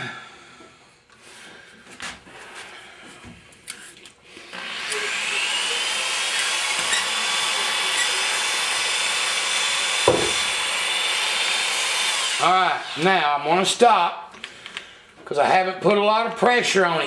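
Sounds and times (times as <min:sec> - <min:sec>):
electric drill honing rasp: 0:04.4 - 0:13.4.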